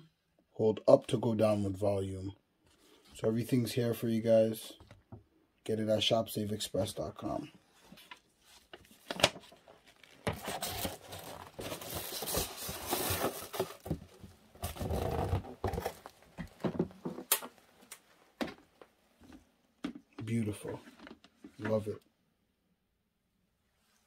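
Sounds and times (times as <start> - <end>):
cardboard box rustling: 8.0 - 16.7
plastic packaging crinkling: 8.4 - 16.2.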